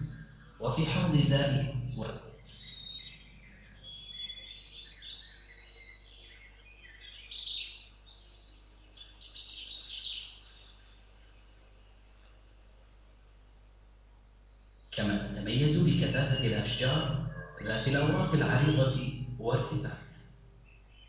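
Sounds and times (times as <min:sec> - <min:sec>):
birds chirping: 0:00.0 - 0:12.0, 0:14.2 - 0:21.0.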